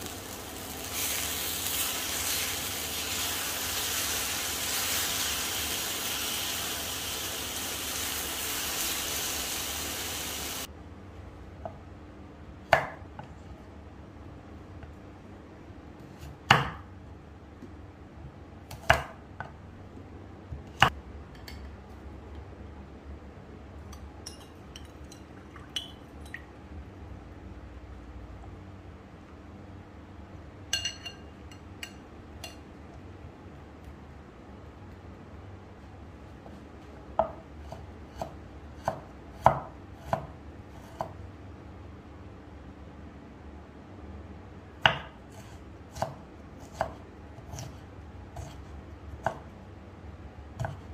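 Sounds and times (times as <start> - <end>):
knife chopping on wooden board: 16.2 - 16.8, 18.7 - 19.5, 37.2 - 41.2, 44.8 - 47.8, 48.4 - 49.4, 50.6 - 50.9.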